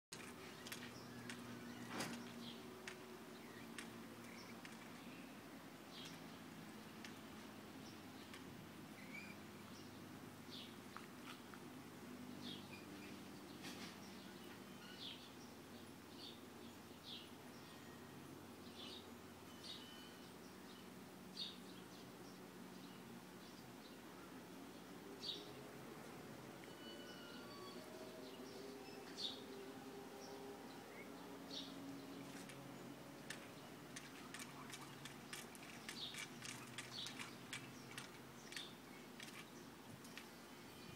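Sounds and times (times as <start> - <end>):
birds chirping: 0.1 - 11.6, 12.3 - 40.9
faint ticks and clicks: 33.2 - 40.3.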